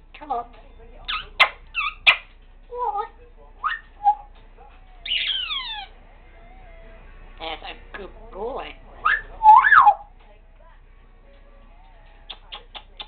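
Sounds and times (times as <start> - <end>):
parrot squeaky chirps: 1.0 - 7.6, 9.0 - 10.1.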